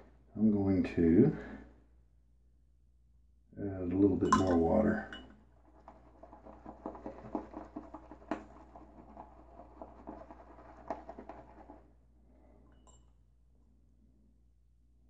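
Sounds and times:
shaving brush whisking lather: 0:05.6 - 0:11.9.

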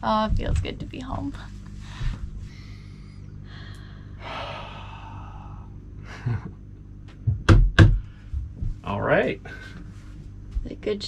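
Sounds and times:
steady low hum: 0:00.0 - 0:11.0
person sighing: 0:03.6 - 0:05.7
person laughing: 0:06.0 - 0:06.6.

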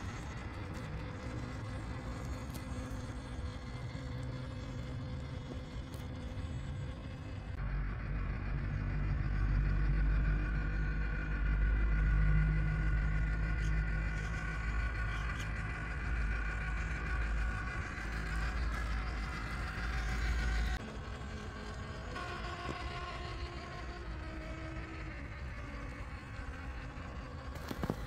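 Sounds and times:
low rumble: 0:00.0 - 0:22.1
electric motor and gears whining: 0:00.0 - 0:28.0.

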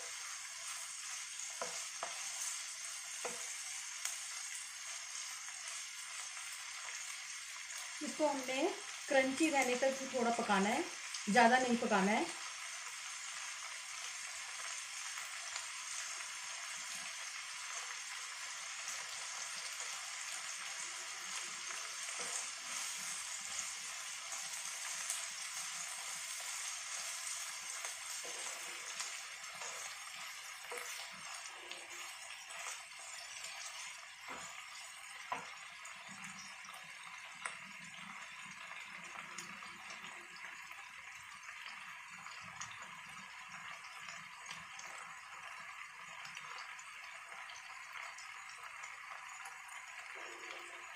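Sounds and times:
wooden spatula stirring: 0:00.0 - 0:03.8, 0:20.8 - 0:35.6
vegetables sizzling in oil: 0:00.0 - 0:50.9.

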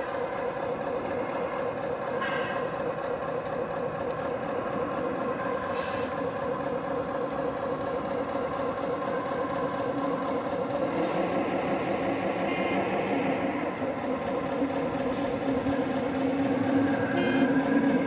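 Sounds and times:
model excavator motors whining: 0:00.0 - 0:18.0
short hisses: 0:05.7 - 0:06.2.

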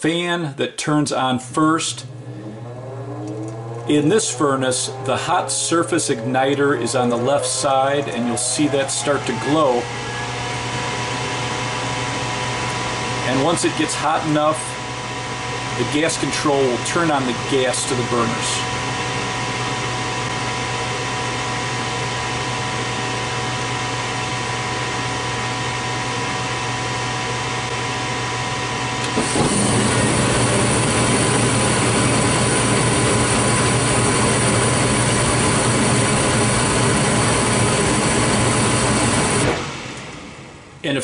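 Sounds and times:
furnace fan humming: 0:00.0 - 0:41.0
burning gas rushing: 0:29.0 - 0:40.8.

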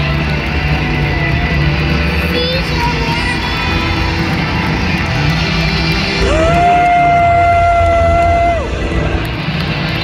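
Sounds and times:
child's voice: 0:02.2 - 0:03.6.

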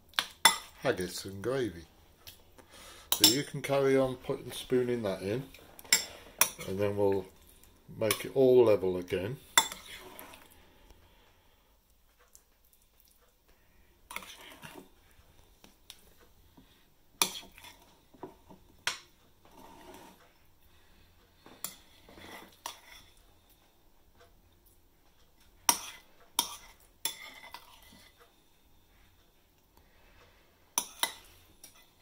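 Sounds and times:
spoon scraping ceramic bowl: 0:09.6 - 0:10.5, 0:14.1 - 0:14.9, 0:17.2 - 0:17.9, 0:19.5 - 0:20.2, 0:21.6 - 0:23.2, 0:25.7 - 0:28.2.

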